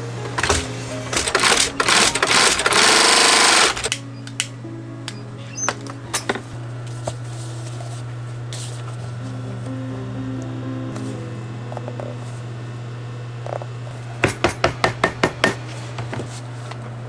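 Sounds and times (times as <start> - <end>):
sewing machine stitching leather: 0.5 - 3.9.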